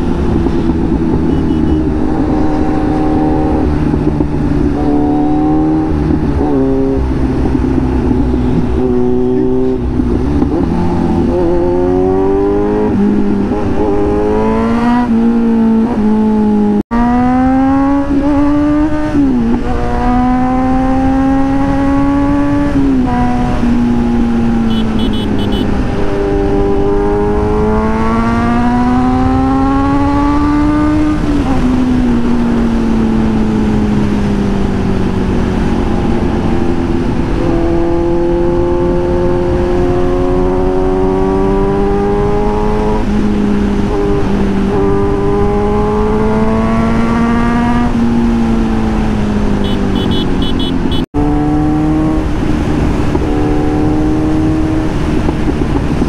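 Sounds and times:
motorcycle engine accelerating: 0.0s - 56.0s.

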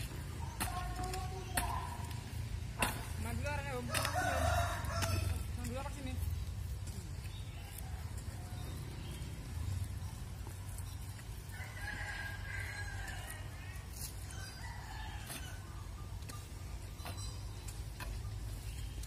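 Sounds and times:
rooster crowing: 4.0s - 5.4s, 11.5s - 13.7s.

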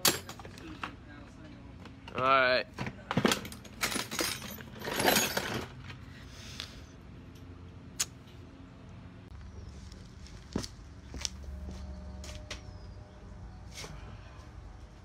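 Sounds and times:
metal tools clinking: 3.1s - 6.0s.

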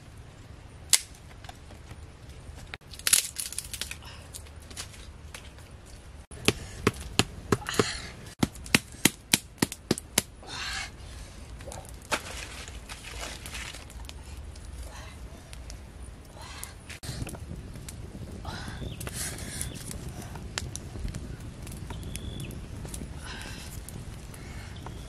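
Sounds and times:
dry wood cracking and snapping: 0.9s - 7.3s, 11.4s - 18.1s, 18.8s - 25.0s
rustling: 11.3s - 15.9s.

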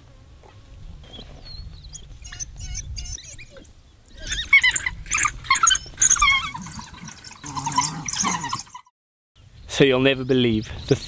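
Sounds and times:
wild dogs twittering: 1.0s - 8.9s.

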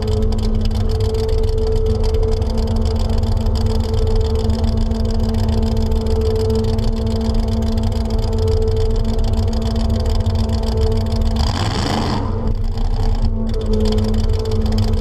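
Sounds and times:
pickup truck engine running: 0.0s - 15.0s.

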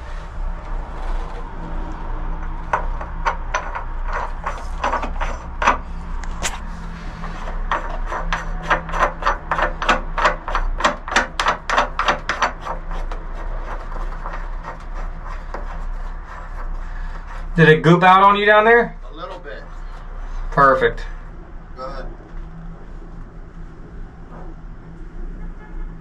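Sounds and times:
metal nut scraping on fitting: 2.8s - 6.5s, 7.2s - 17.8s.

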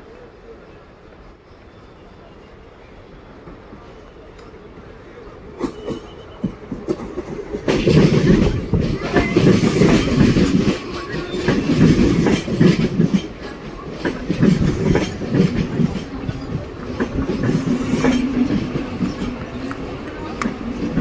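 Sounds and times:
train wheels clattering: 5.6s - 21.0s.

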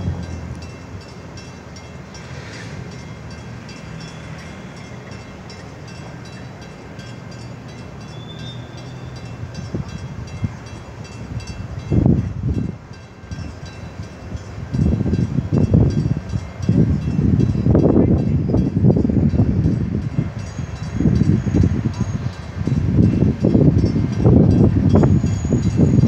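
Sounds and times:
wind rumbling on microphone: 0.0s - 1.0s, 9.5s - 26.0s.

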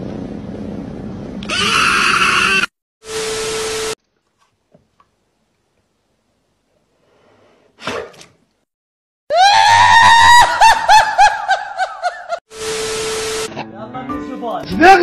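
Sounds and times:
high-pitched trembling scream: 1.5s - 2.7s, 9.3s - 10.6s.

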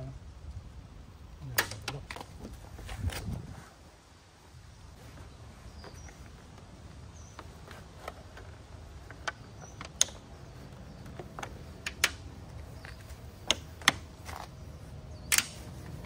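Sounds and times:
magnets clicking onto car door: 9.1s - 14.5s, 15.2s - 15.8s.

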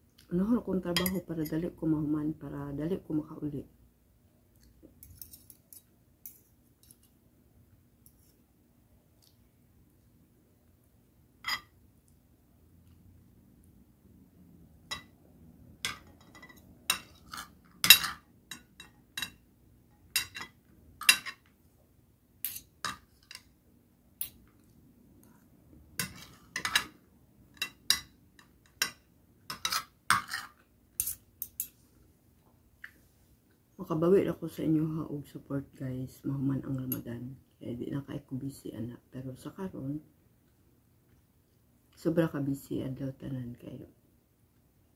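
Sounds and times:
cutlery clinking on a plate: 11.4s - 11.8s, 15.8s - 19.4s, 20.2s - 21.5s, 22.4s - 23.5s, 26.0s - 27.0s, 27.6s - 31.8s.

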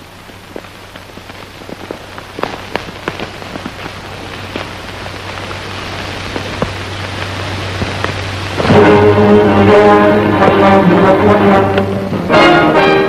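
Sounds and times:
horses galloping hoofbeats: 0.0s - 9.0s.

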